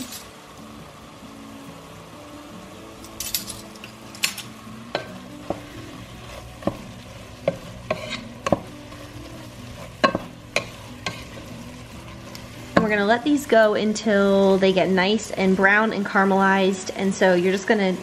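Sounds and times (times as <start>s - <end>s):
onions sizzling in oil: 0.0s - 18.0s
wooden spoon knocking pot: 6.6s - 6.8s, 10.0s - 11.2s.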